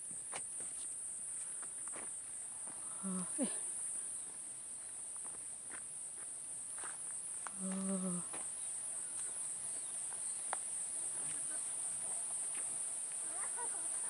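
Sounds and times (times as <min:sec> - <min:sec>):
insects shrilling: 0:07.6 - 0:14.0.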